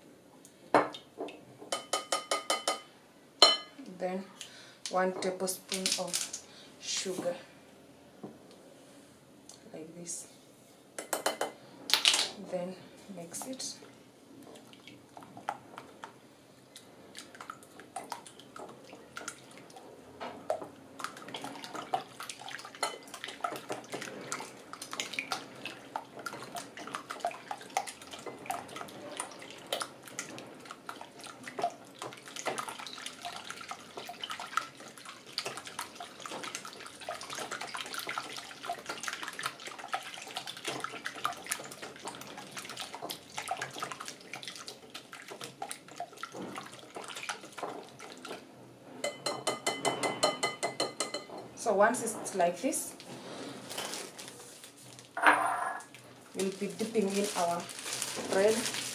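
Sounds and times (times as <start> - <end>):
whisk sloshing egg mixture: 16.8 - 19.9, 20.5 - 48.4.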